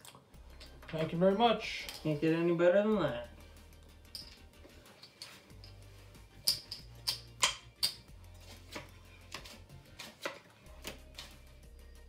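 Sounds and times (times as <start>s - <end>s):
playing cards being gathered: 4.3s - 11.6s
poker chips clicking: 6.4s - 8.0s.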